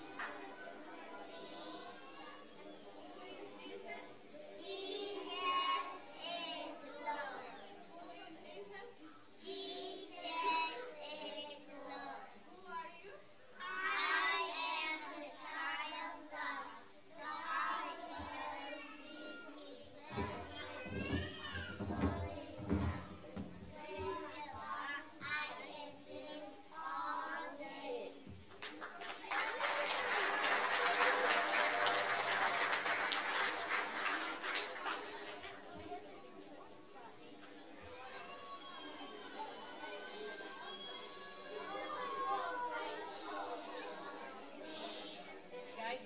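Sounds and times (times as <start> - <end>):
children singing: 0.0 - 8.8, 9.4 - 12.4, 13.6 - 28.4, 37.4 - 45.5
audience clapping: 28.5 - 35.7.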